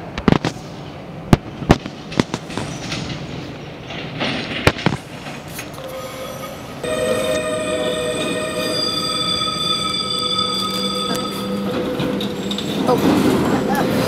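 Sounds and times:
tram wheel squeal: 0:05.5 - 0:14.0.

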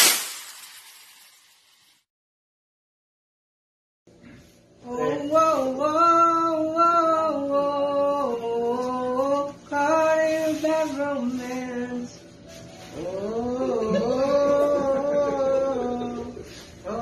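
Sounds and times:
person singing slow melody: 0:04.8 - 0:12.2, 0:12.8 - 0:17.0.

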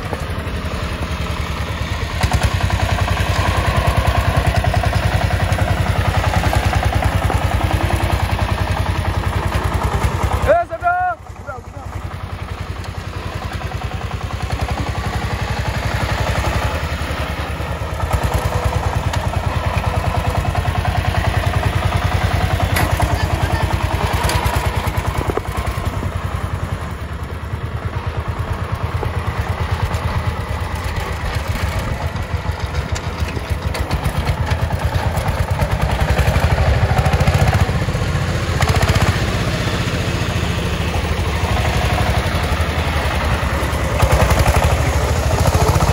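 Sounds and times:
diesel engine chugging: 0:00.0 - 0:45.9.

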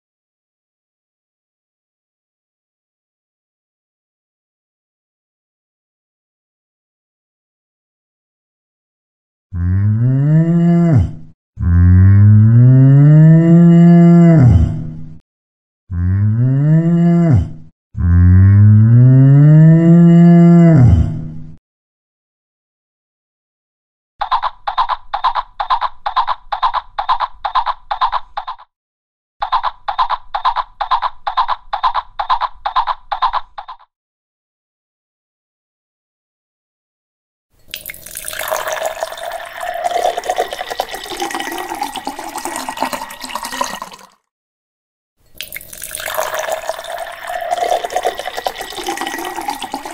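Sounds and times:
cow mooing: 0:09.6 - 0:14.5, 0:15.9 - 0:20.9
water pouring into glass: 0:37.6 - 0:44.3, 0:45.3 - 0:49.9.

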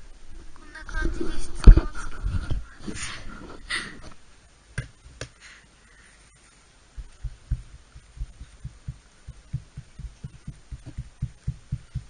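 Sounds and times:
soft low thumps: 0:06.9 - 0:12.0
toothbrush tapping on clay: 0:07.0 - 0:12.0.

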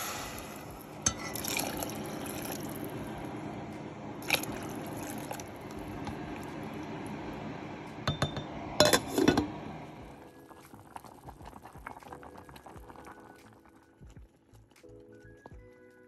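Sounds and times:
beans boiling in a pot: 0:00.0 - 0:16.0
spoon knocking against a pot: 0:08.1 - 0:09.5.

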